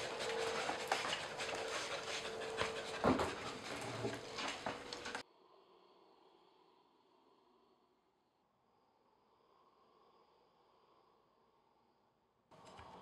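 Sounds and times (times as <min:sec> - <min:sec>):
dog panting: 0:00.0 - 0:05.2
footsteps: 0:00.0 - 0:05.2.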